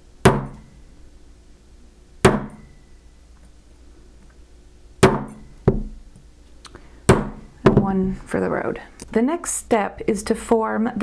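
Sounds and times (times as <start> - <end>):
mallet striking metal stamp: 0.2 - 0.6, 2.2 - 2.7, 5.0 - 5.9.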